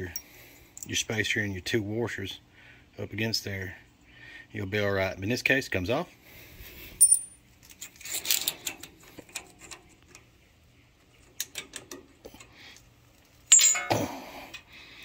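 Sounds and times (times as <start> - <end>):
metal piece tinking on concrete: 7.0 - 7.4, 13.5 - 14.1
steel spacer clanking on concrete: 7.0 - 9.8, 13.5 - 14.6
steel parts clinking and scraping: 7.0 - 10.2, 11.4 - 14.7.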